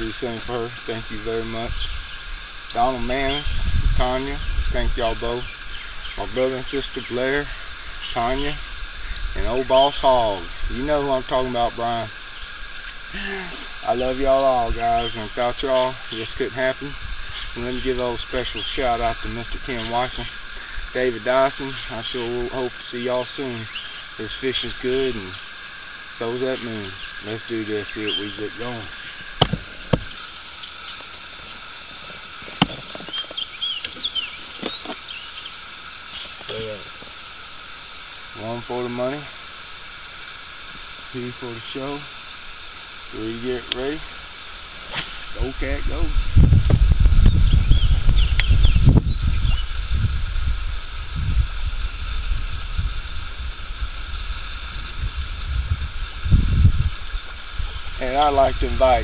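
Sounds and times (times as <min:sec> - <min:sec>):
steady outdoor background: 0:00.0 - 0:59.0
small birds chirping: 0:00.9 - 0:11.0, 0:11.9 - 0:31.8, 0:32.6 - 0:37.2, 0:47.2 - 0:49.8
wind buffeting microphone: 0:01.1 - 0:11.7, 0:45.2 - 0:59.0.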